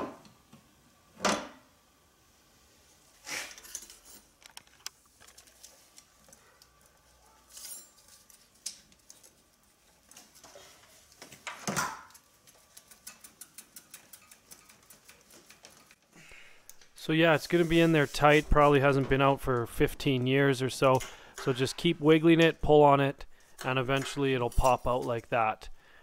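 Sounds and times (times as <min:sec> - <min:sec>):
metal pipe clicks and rattles: 0:12.0 - 0:16.0.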